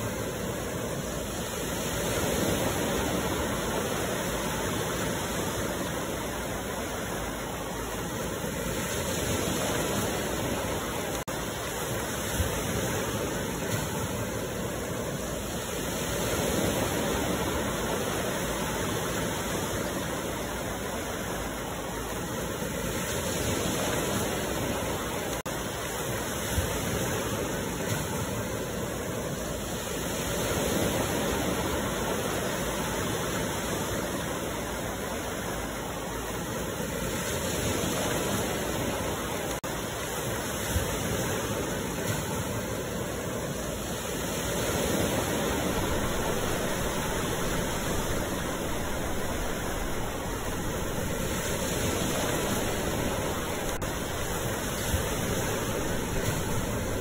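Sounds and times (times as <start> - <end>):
waterfall rushing into pool: 0.0 - 57.0.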